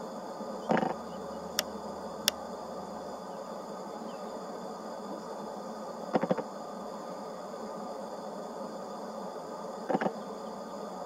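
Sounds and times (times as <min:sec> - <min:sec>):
insect chirring: 0:00.1 - 0:04.5.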